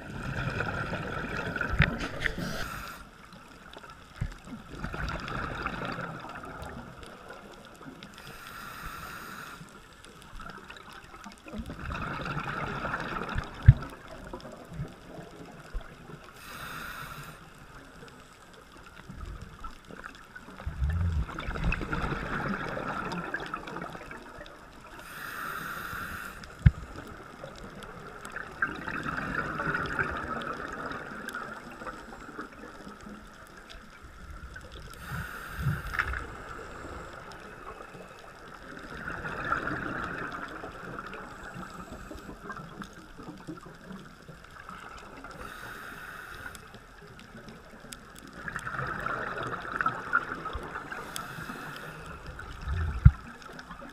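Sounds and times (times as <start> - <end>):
gurgling exhaled bubbles: 0.0 - 2.9, 4.2 - 7.5, 10.7 - 16.2, 19.4 - 25.0, 26.6 - 32.9, 33.8 - 45.5, 47.2 - 53.9
regulator hiss on inhale: 1.8 - 3.4, 8.2 - 10.2, 16.3 - 18.5, 24.9 - 27.1, 34.9 - 38.4, 41.0 - 42.5, 45.2 - 47.0, 50.8 - 53.2.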